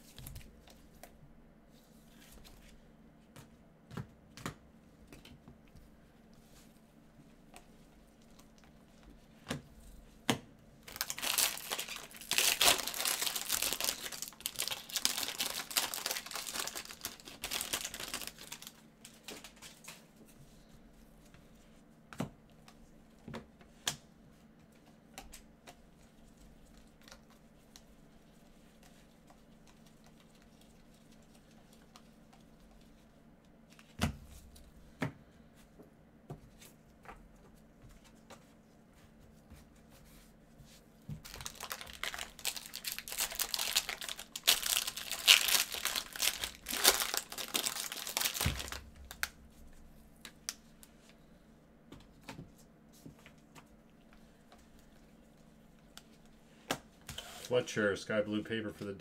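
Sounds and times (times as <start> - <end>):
packaging crinkling and rustling: 10.8 - 20.1, 41.2 - 49.4.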